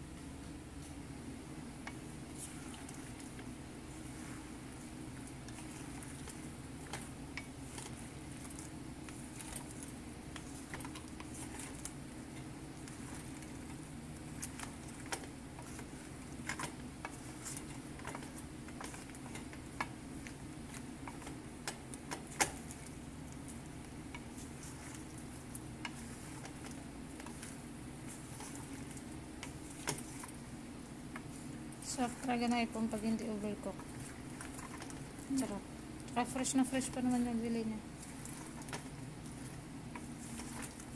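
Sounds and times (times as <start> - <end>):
steady low hum: 0.0 - 40.9.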